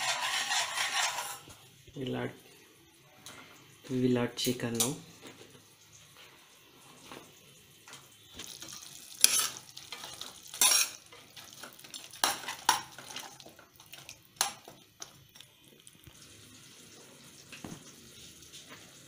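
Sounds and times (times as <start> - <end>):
spatula scraping a pan: 0.0 - 1.6, 8.4 - 15.2
light sizzle: 0.0 - 19.0.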